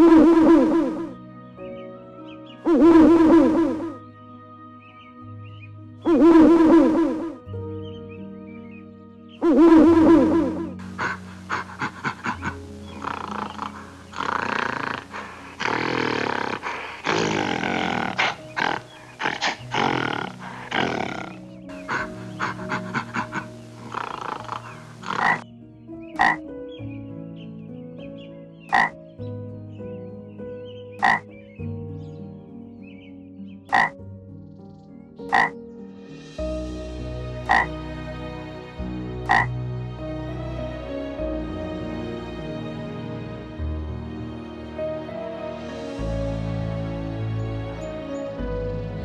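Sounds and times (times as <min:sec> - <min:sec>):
frog croaking: 0:00.0 - 0:01.1, 0:02.6 - 0:04.0, 0:06.1 - 0:07.4, 0:09.4 - 0:25.4, 0:26.2 - 0:26.4, 0:28.7 - 0:29.0, 0:31.0 - 0:31.3, 0:33.7 - 0:34.0, 0:35.3 - 0:35.6, 0:37.5 - 0:37.7, 0:39.3 - 0:39.5
background music: 0:00.0 - 0:49.0
monkey calling: 0:02.7 - 0:04.0, 0:06.1 - 0:07.4, 0:09.4 - 0:25.4, 0:26.2 - 0:26.4, 0:33.7 - 0:34.0.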